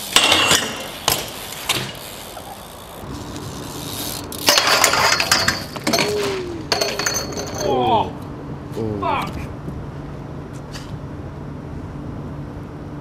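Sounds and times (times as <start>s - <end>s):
bike pegs grinding on rail: 0.0s - 7.8s.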